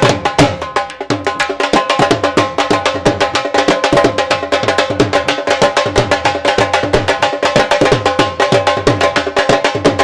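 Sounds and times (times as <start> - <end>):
dhol drum beaten fast: 0.0 - 10.0.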